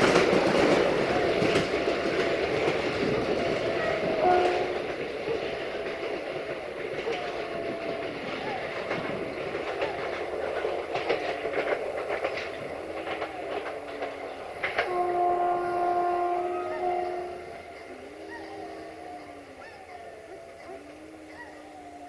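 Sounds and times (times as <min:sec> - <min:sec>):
train wheels clicking over joints: 0:00.0 - 0:22.0
locomotive air horn: 0:02.8 - 0:06.2, 0:14.6 - 0:19.6.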